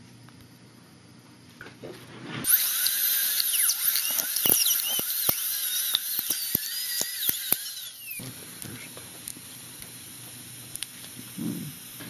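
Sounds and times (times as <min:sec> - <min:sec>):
dental drill whine: 0:02.4 - 0:12.0
sharp clicks: 0:02.5 - 0:08.2.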